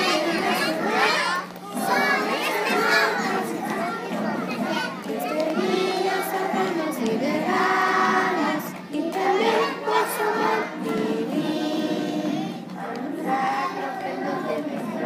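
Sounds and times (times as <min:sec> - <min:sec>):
children singing in unison: 0:00.0 - 0:15.0.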